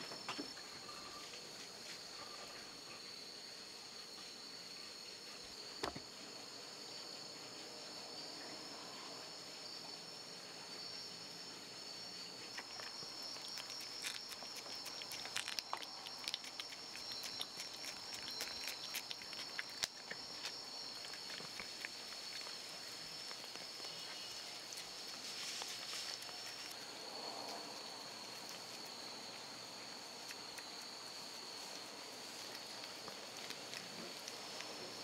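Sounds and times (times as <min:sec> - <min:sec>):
rabbit nibbling and chewing: 0:10.3 - 0:35.0
high-pitched insect chirring: 0:13.2 - 0:20.1.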